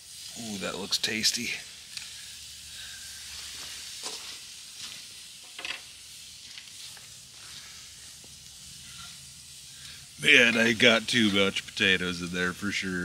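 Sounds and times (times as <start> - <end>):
food sizzling: 0.0 - 13.0
spatula scraping a skillet: 1.9 - 5.8, 6.4 - 11.6.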